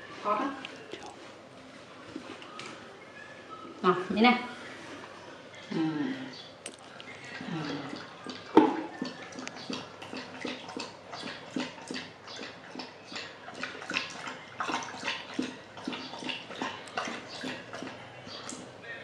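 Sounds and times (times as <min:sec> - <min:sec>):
dog lapping water: 0:06.8 - 0:18.8.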